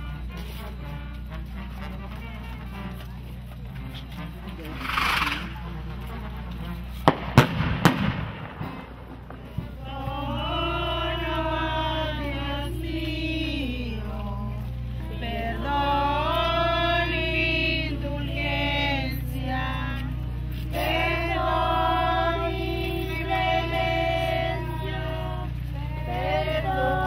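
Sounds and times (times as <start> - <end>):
crowd singing a hymn: 4.6 - 5.8, 9.6 - 27.0
firecracker bangs: 7.0 - 8.8.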